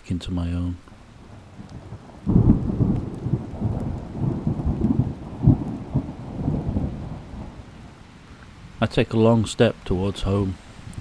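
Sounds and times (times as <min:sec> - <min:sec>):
steady rain: 0:00.0 - 0:11.0
rolling rumble of thunder: 0:01.1 - 0:08.8.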